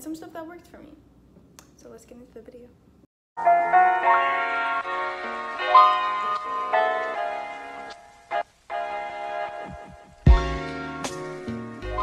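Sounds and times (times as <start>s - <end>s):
deep bass hits dropping in pitch: 9.8s - 10.8s.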